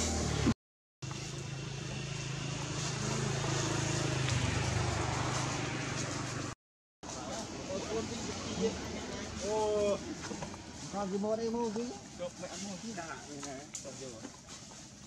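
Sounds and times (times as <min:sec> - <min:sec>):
vehicle engine droning: 0:00.0 - 0:11.4.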